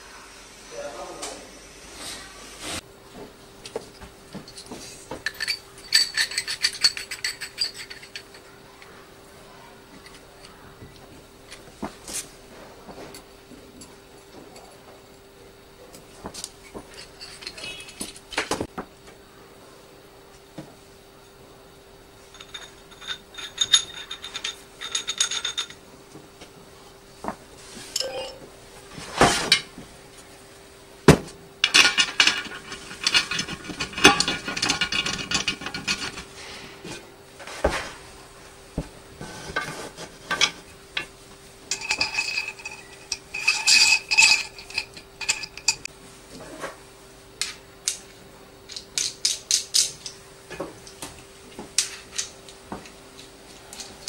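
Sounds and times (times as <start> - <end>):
faint steady hum: 0.0 - 54.0
metal parts clinking and scraping: 4.5 - 8.6, 16.6 - 18.6, 22.2 - 25.8, 31.6 - 38.0, 39.2 - 45.9, 48.7 - 50.2, 51.8 - 52.3.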